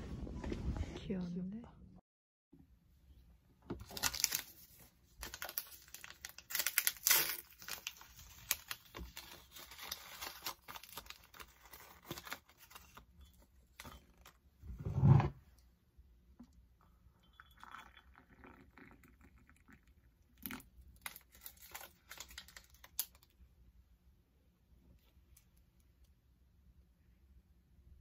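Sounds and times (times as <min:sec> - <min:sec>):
paper sachet tearing and crinkling: 0:03.8 - 0:13.1, 0:21.0 - 0:23.3.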